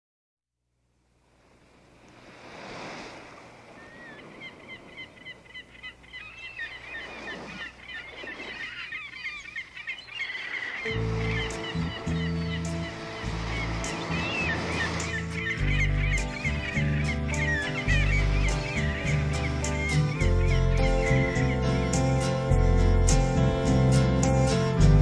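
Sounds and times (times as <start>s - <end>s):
surf washing in and out: 1.2s - 25.0s
birds chirping and calling: 3.7s - 24.7s
band instruments sustained notes: 10.9s - 17.6s.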